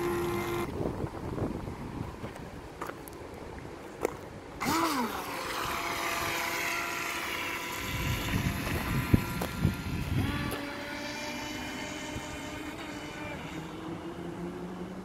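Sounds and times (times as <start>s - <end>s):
electric motor whining: 0.0s - 0.8s, 4.6s - 15.0s.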